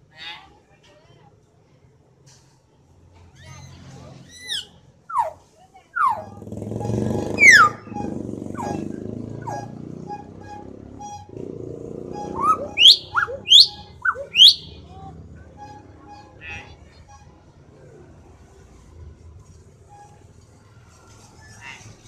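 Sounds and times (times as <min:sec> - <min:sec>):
myna bird whistling: 0:04.3 - 0:05.4, 0:06.0 - 0:06.4, 0:07.2 - 0:14.9.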